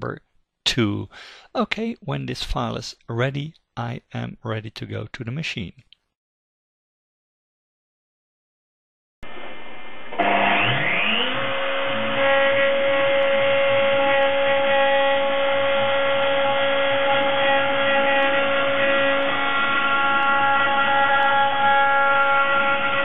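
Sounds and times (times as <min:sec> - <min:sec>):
milling machine spindle whine: 0:09.3 - 0:23.0.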